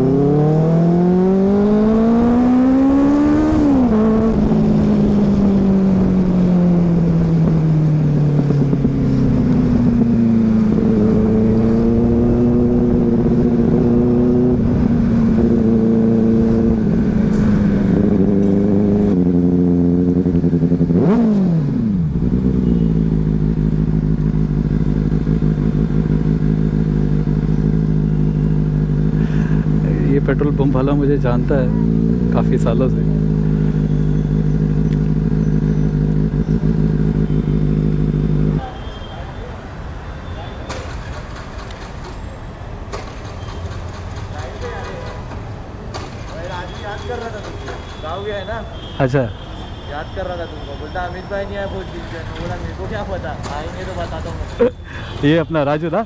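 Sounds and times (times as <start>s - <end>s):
motorcycle engine revving: 0.0s - 38.8s, 42.9s - 48.2s.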